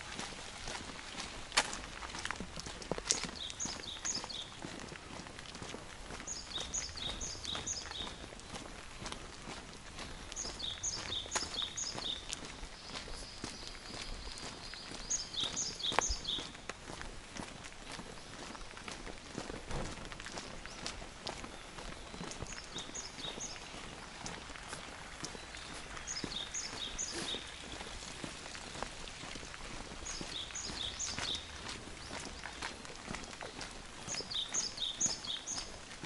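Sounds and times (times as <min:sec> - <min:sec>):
footsteps on wet pavement: 0:00.0 - 0:36.0
light rain: 0:00.0 - 0:36.0
bird chirping: 0:03.1 - 0:04.6, 0:06.3 - 0:08.2, 0:10.2 - 0:16.6, 0:21.5 - 0:24.0, 0:25.2 - 0:27.9, 0:30.0 - 0:32.7, 0:34.0 - 0:35.8.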